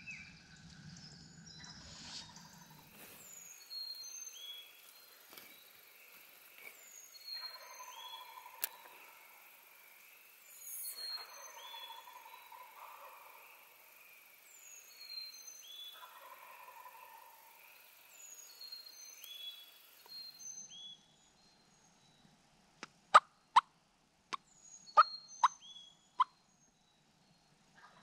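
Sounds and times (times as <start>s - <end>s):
songbirds singing: 0.0s - 22.4s, 24.4s - 28.0s
turkey clucks: 16.0s - 17.3s.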